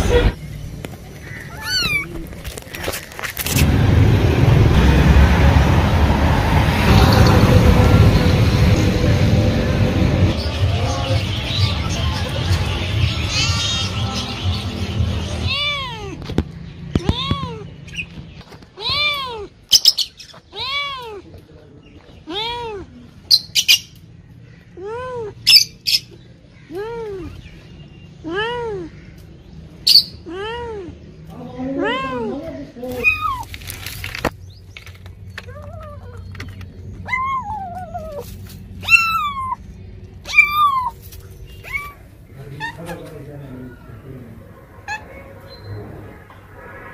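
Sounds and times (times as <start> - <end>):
cat meowing: 1.4 - 2.3, 15.4 - 16.2, 17.0 - 17.7, 18.8 - 19.5, 20.5 - 21.2, 31.7 - 33.5, 37.0 - 39.6, 40.2 - 41.0, 41.6 - 42.0.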